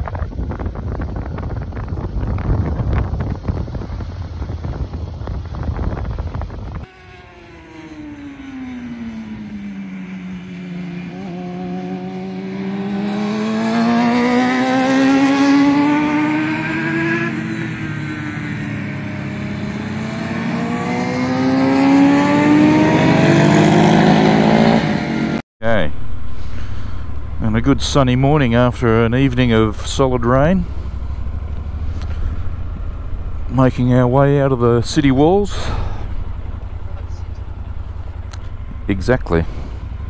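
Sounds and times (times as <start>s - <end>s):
wind buffeting microphone: 0.0s - 6.9s
racing motorcycle engines: 0.0s - 40.0s.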